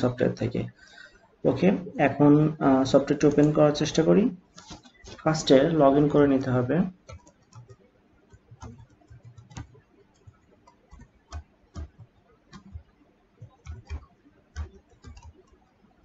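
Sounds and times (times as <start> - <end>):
keyboard key clicks: 7.1 - 15.5.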